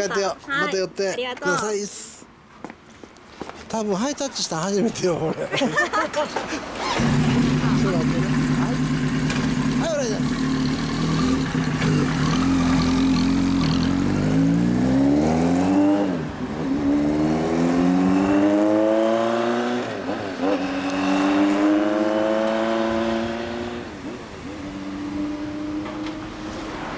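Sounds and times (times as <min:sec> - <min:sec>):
motorcycle accelerating: 0:06.7 - 0:26.9.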